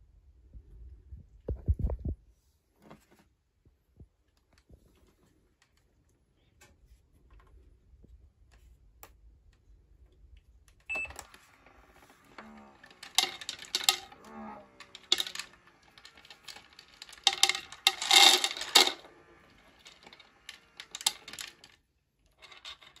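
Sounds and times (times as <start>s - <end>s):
pet feeder humming: 10.9s - 21.8s
kibble rattling into bowls: 12.2s - 21.8s.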